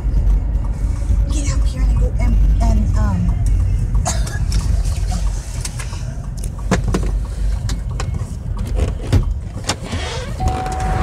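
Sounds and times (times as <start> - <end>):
freight train rumbling over bridge: 0.0 - 8.6.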